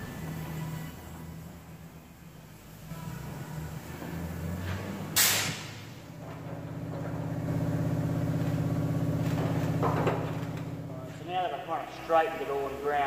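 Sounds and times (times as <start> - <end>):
short loud hiss: 5.2 - 5.8.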